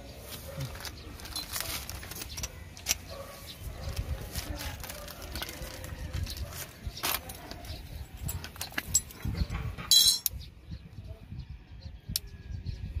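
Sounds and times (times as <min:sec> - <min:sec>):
plastic packaging rustling: 0:00.2 - 0:07.7.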